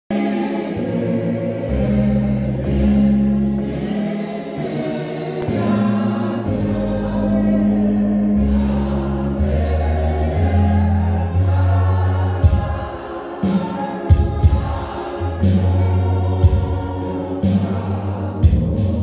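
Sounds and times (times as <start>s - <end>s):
congregation singing a hymn: 0.1s - 19.0s
long held low notes: 0.7s - 13.4s.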